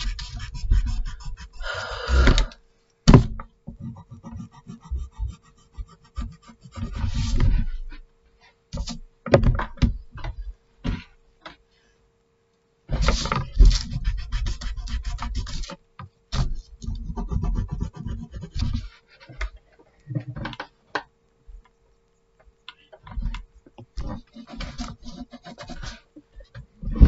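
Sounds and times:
pencil scratching on paper: 0.0s - 1.7s, 3.8s - 7.9s, 13.0s - 15.8s, 16.4s - 19.4s, 24.0s - 26.1s.

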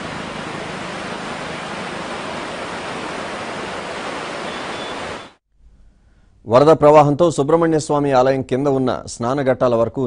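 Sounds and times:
flooded river rushing: 0.0s - 5.4s.

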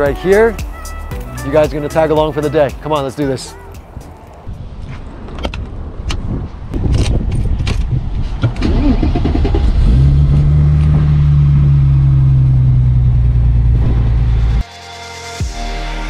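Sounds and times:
starter cranking: 6.9s - 11.2s
car engine idling: 8.6s - 14.6s.

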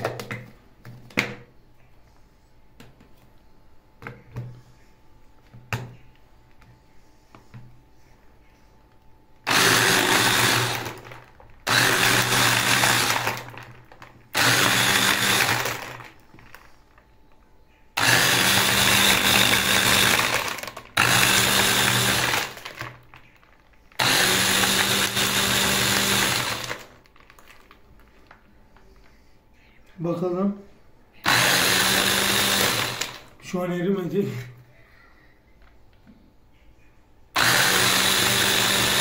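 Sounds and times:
hand blender crushing ice: 9.5s - 16.7s, 18.0s - 27.8s, 31.3s - 33.3s, 37.4s - 39.0s.

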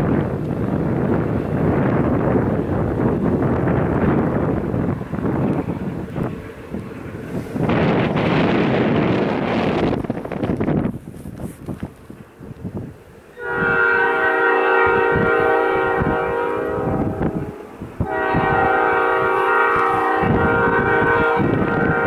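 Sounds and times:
locomotive air horn blasts: 13.4s - 22.0s.

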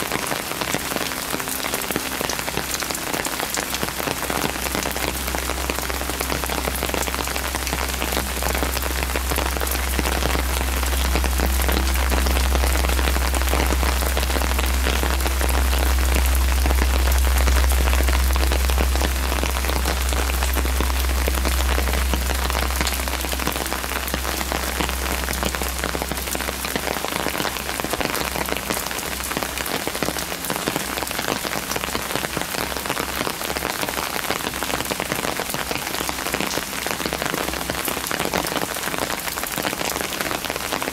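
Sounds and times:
rain on stone paving: 0.0s - 40.9s
deep low rumble: 1.7s - 33.3s.

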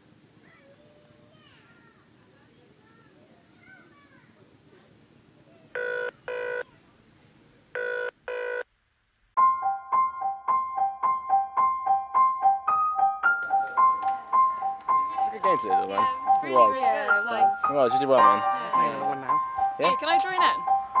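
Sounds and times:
telephone ringing tone: 5.8s - 6.6s, 7.8s - 8.6s
light keyboard music: 9.4s - 21.0s.

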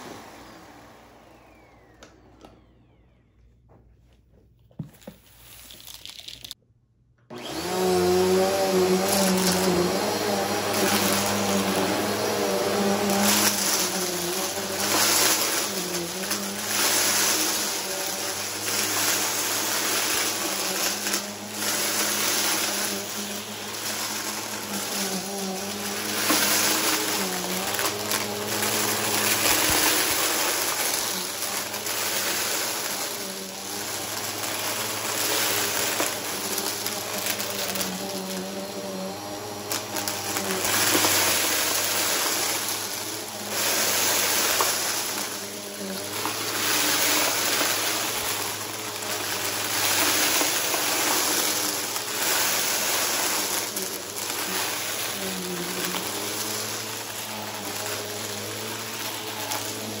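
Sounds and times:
vacuum cleaner running: 0.0s - 6.2s, 7.2s - 60.0s
confetti rattling through nozzle: 5.2s - 6.6s, 8.1s - 60.0s.

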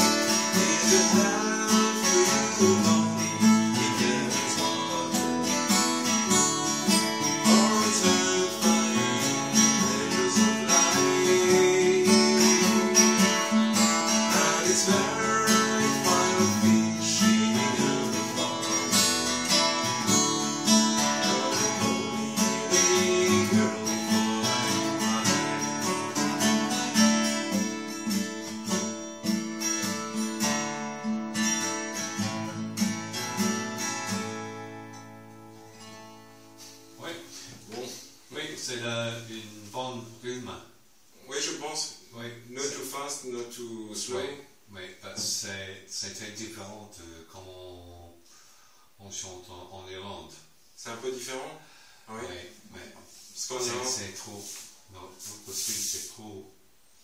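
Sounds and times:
acoustic guitar strummed and picked: 0.0s - 39.3s.

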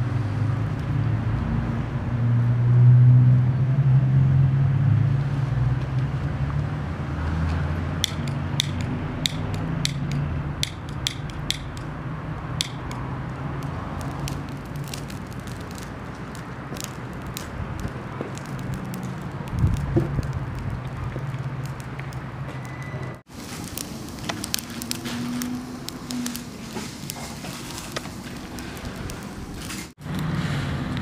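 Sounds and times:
twigs crackling in fire: 7.5s - 31.0s.

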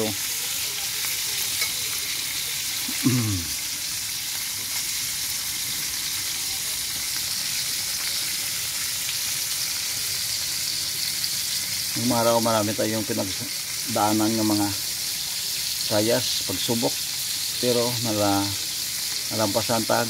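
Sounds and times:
fish sizzling in hot oil: 0.0s - 20.0s.

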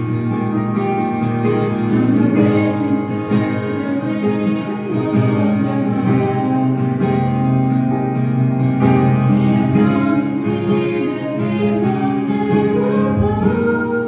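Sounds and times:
women singing together: 1.8s - 7.4s, 9.2s - 14.0s.

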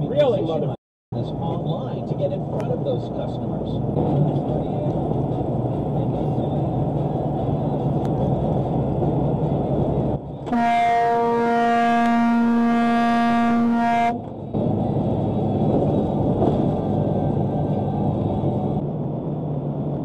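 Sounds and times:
truck road and engine noise: 0.0s - 20.0s
truck horn blast: 10.5s - 14.3s.

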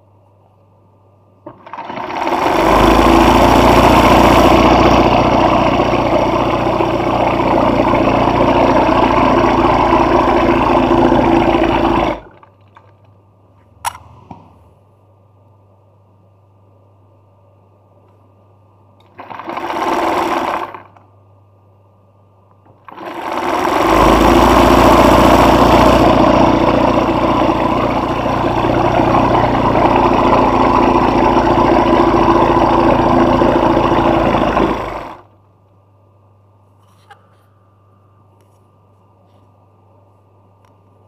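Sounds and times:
sewing machine stitching: 1.4s - 12.6s, 19.0s - 21.0s, 22.8s - 35.3s.

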